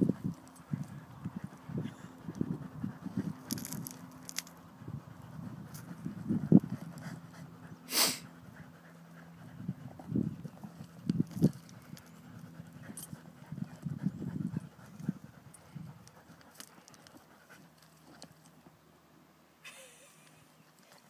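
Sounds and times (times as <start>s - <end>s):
dog hissing blow: 7.8s - 8.3s.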